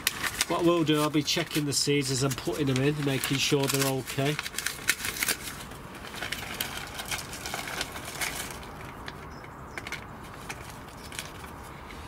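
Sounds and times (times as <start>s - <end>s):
dry seeds clicking: 0.0s - 5.5s
paper packet rustling: 0.0s - 12.0s.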